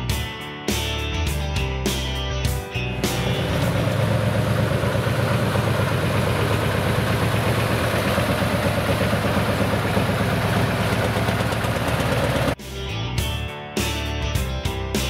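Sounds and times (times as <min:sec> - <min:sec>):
heavy diesel truck engine running: 0:02.9 - 0:12.6.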